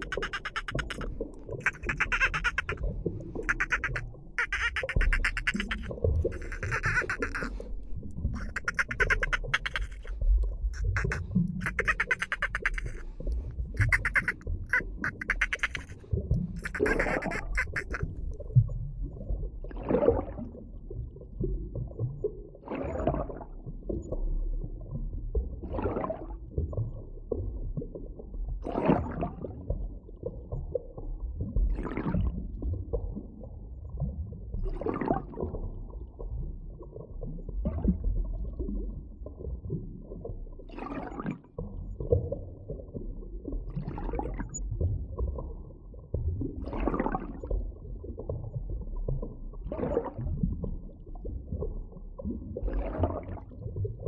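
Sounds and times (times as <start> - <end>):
water rush: 0.0 - 18.2
underwater low rumble: 18.0 - 54.0.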